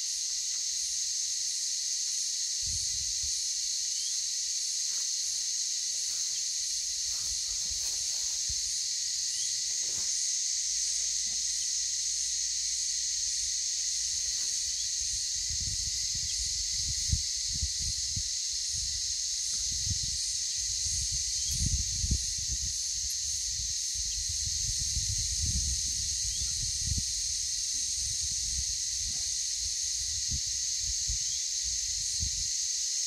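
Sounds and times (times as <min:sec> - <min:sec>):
insects droning: 0:00.0 - 0:33.0
wind buffeting microphone: 0:14.9 - 0:19.0, 0:19.6 - 0:27.4.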